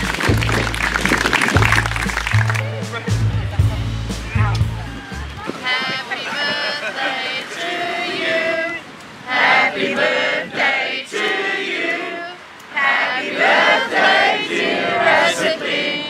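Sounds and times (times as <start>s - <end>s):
crowd singing in chorus: 5.4s - 16.0s.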